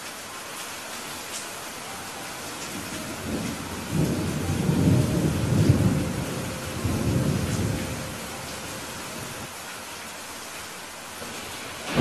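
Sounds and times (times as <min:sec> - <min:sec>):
heavy rain hissing: 0:00.0 - 0:12.0
thunder rumbling: 0:02.4 - 0:09.5, 0:11.2 - 0:12.0.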